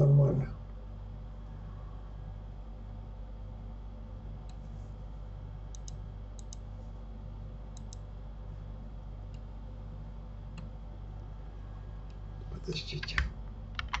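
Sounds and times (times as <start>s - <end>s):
steady low hum: 0.0s - 14.0s
computer mouse clicking: 5.7s - 6.7s, 7.7s - 8.0s, 13.0s - 14.0s.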